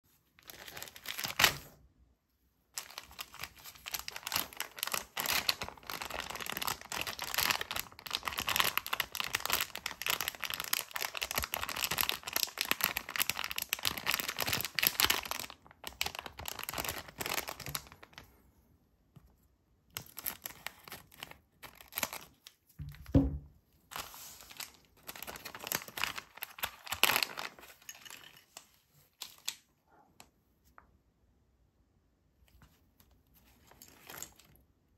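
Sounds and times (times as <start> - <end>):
plastic bag crinkling and tearing: 0.4 - 1.8, 2.8 - 18.3, 20.0 - 22.6, 23.9 - 28.5.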